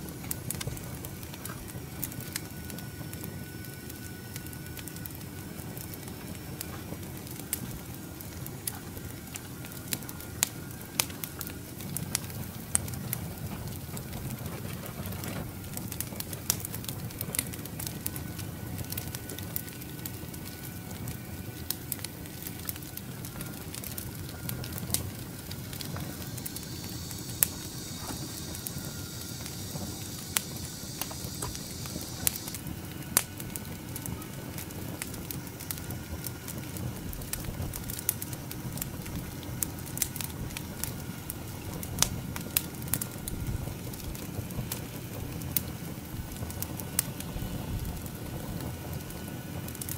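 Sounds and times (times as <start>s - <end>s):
firewood crackling and popping: 0.0s - 49.9s
high steady whirring: 0.0s - 49.9s
low rush of flame: 0.0s - 49.9s.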